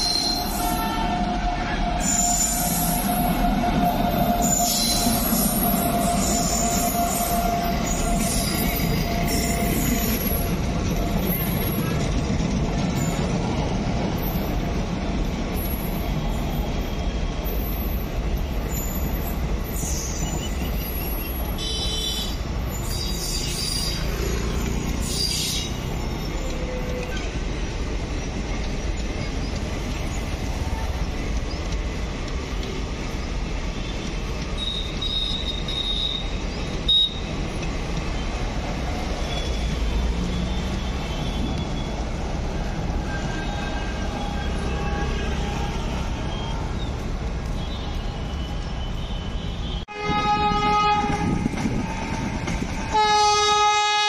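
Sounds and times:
high-pitched wheel squeals: 0.0s - 10.6s, 18.7s - 27.3s, 34.5s - 37.3s
train wheels rumbling on rails: 0.0s - 54.0s.

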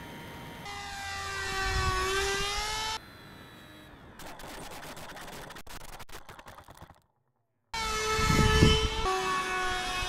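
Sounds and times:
model airplane motors whining: 0.0s - 5.1s.

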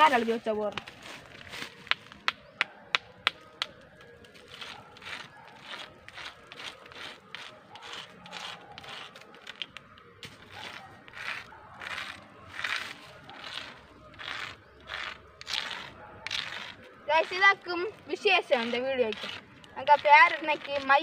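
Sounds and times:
stone scratching rock: 4.3s - 21.0s.

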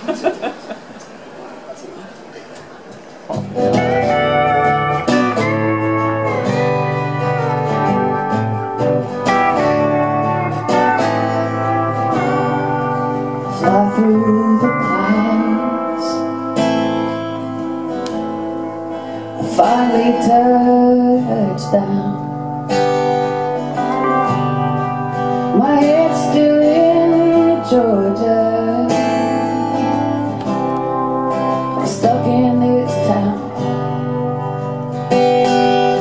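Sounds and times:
guitar accompaniment: 0.0s - 36.0s
woman singing into microphone: 13.4s - 16.6s, 19.4s - 22.6s, 25.4s - 31.0s, 31.7s - 34.2s.

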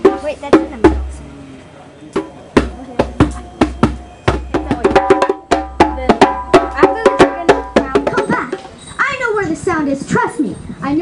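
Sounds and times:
hand drum strikes: 0.0s - 1.2s, 2.2s - 8.8s.

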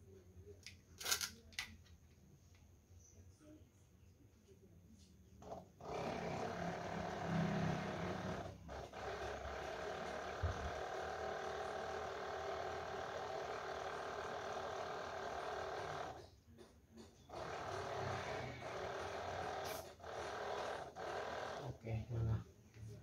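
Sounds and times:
electric pump motor running: 5.4s - 16.3s, 17.3s - 22.4s.

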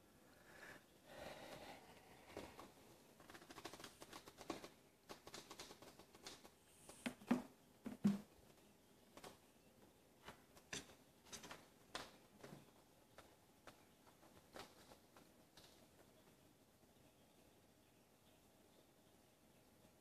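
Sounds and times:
paws tapping and claws scratching: 2.3s - 9.4s, 10.2s - 16.4s.

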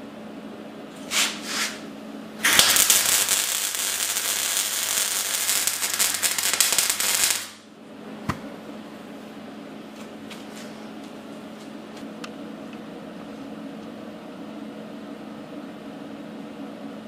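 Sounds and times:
welding arc crackling: 2.4s - 7.6s.

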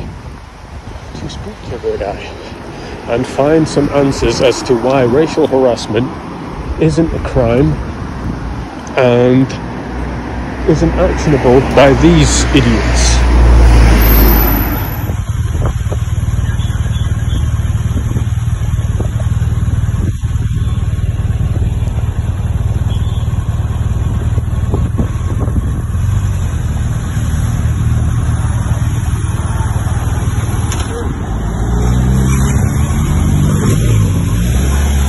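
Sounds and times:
traffic driving past: 0.0s - 35.0s
motorcycle passing close: 10.3s - 35.0s.

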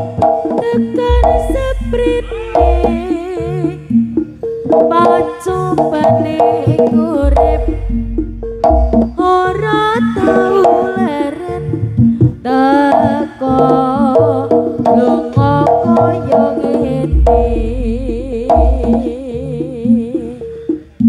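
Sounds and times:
gamelan music with drums: 0.0s - 21.0s
deep low boom: 1.1s - 3.9s, 7.2s - 9.2s, 17.2s - 19.0s.

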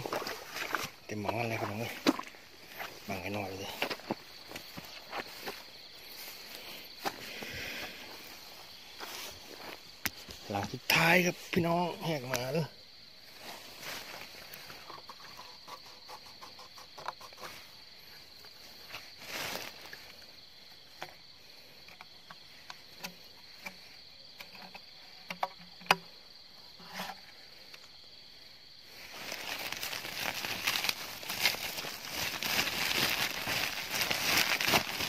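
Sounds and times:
night insects chirring: 0.0s - 35.0s
small clicks and knocks: 24.4s - 26.1s
plastic sack rustling: 29.1s - 35.0s.

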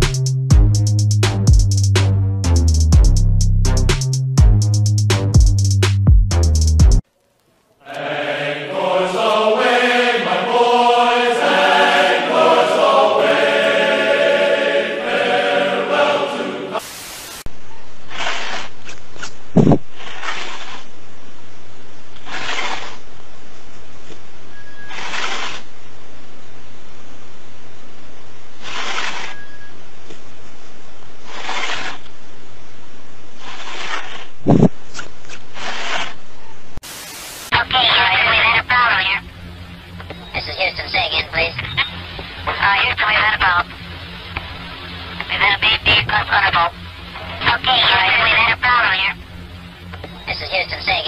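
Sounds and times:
choral chant singing: 7.8s - 17.0s
burst of hiss: 16.8s - 17.4s, 36.8s - 37.5s
cat hissing: 18.1s - 18.7s, 19.9s - 20.8s, 22.2s - 23.0s, 24.9s - 25.6s, 28.6s - 29.4s, 31.3s - 32.0s
loud low thump: 19.6s - 19.8s, 34.5s - 34.8s
steady low hum: 37.5s - 51.0s.

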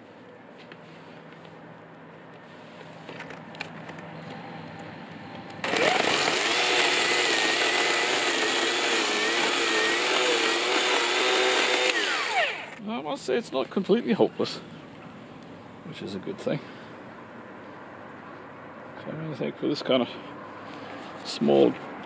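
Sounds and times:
electric chainsaw cutting log: 5.6s - 12.8s.

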